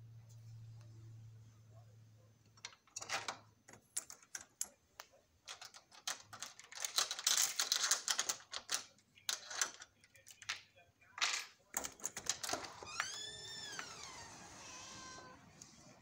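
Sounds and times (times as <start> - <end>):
low steady hum: 0.0 - 5.5
chain door lock rattling: 2.6 - 4.8, 5.5 - 9.9.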